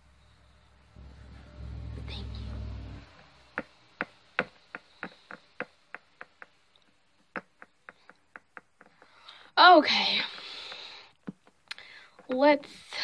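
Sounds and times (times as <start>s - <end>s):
plastic toy tapping on hard surface: 3.6s - 9.4s.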